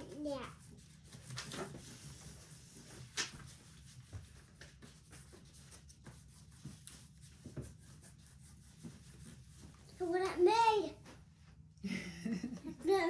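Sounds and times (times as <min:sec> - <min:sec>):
pastels scratching on paper: 0:00.0 - 0:10.4.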